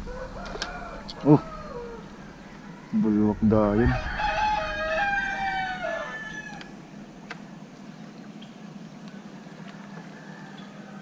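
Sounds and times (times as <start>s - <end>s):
rooster crowing: 0.0s - 6.8s, 9.9s - 11.0s.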